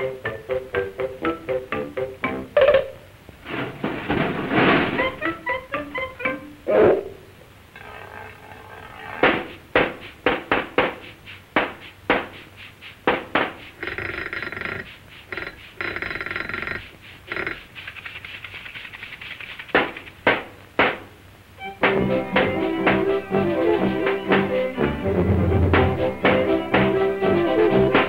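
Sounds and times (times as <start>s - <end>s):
sharp knocks: 9.2s - 11.0s, 13.0s - 14.6s, 19.7s - 21.1s
raspy buzzing: 13.7s - 18.8s.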